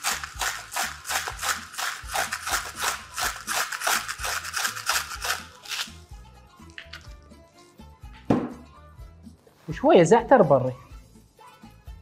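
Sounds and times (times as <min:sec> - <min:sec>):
salt grinder crunching: 0:00.0 - 0:06.0.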